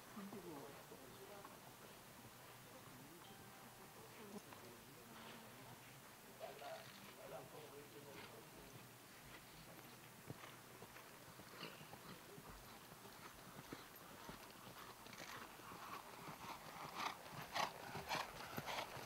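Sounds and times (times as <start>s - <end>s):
horse hoofbeats trotting on sand: 4.0s - 19.0s.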